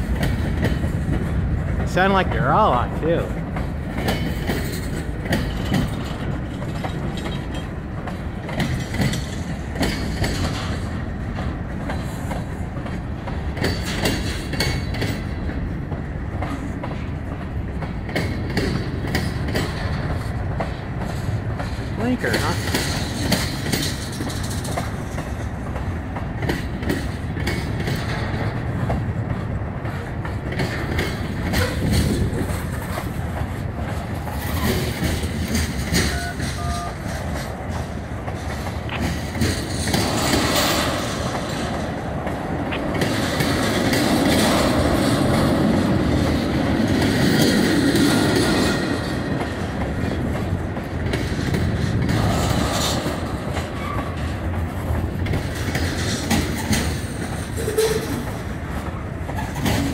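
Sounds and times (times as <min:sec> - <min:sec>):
train rumble: 0:00.0 - 0:59.9
train wheels clicking on rail joints: 0:00.0 - 0:59.9.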